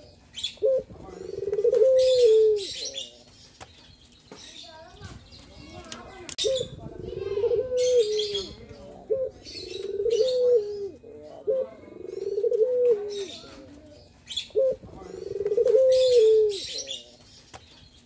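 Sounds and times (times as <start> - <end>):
dove cooing: 0.0 - 3.1, 6.4 - 17.2.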